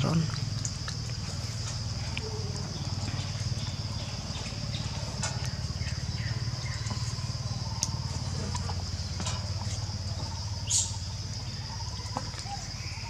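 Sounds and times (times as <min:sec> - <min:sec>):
motorcycle engine idling: 0:01.2 - 0:13.0.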